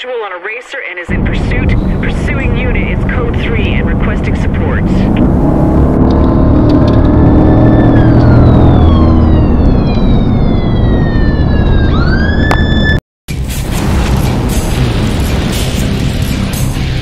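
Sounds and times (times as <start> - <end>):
loud engine drone: 1.1 - 12.7, 13.6 - 17.0
police siren wailing: 1.1 - 13.0.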